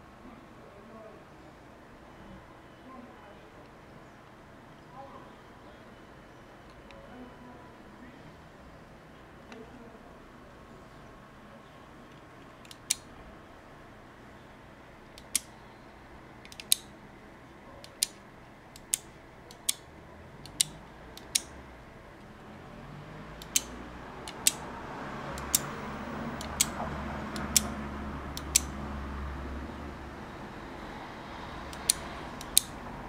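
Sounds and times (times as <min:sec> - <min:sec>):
relays clicking: 0:16.4 - 0:16.9, 0:17.8 - 0:21.5, 0:23.4 - 0:24.6, 0:25.3 - 0:25.8, 0:26.4 - 0:28.7, 0:31.7 - 0:32.8.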